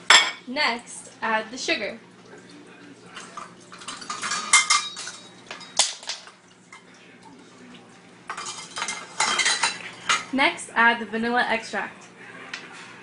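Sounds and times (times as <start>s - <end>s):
utensils clinking against mixing bowl: 3.1s - 7.0s, 8.3s - 10.4s.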